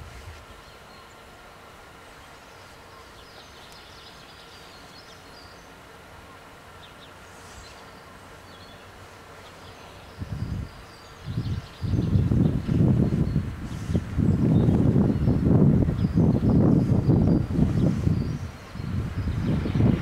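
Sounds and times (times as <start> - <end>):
low gusting rumble: 10.1 - 20.0.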